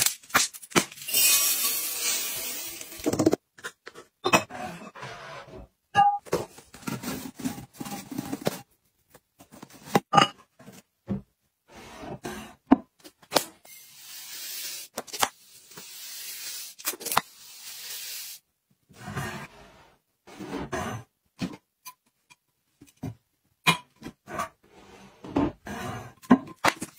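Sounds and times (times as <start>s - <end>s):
powder pouring hiss: 17.4s - 18.4s.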